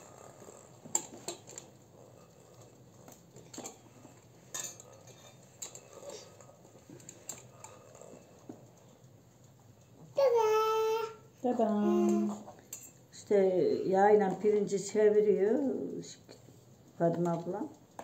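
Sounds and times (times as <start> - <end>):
dishes clicking and clinking: 0.0 - 8.8, 12.0 - 13.1.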